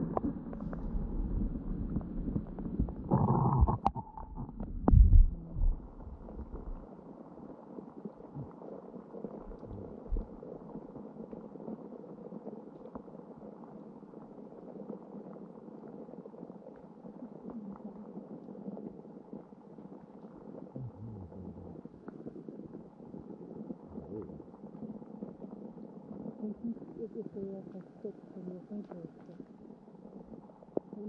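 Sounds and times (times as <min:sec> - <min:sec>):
faint ticks and crackles: 0:00.0 - 0:31.0
dull low thumps: 0:00.9 - 0:06.8, 0:09.5 - 0:10.4.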